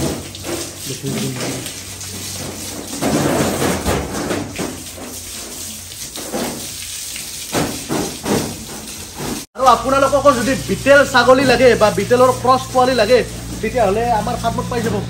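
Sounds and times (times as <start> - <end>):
hose water spraying: 0.0 - 15.0
water splashing on floor: 0.0 - 15.0.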